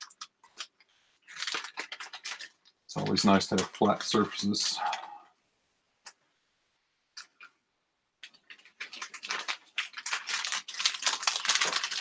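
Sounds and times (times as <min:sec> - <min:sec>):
packaging crinkling and rustling: 0:00.0 - 0:05.1, 0:08.2 - 0:12.0.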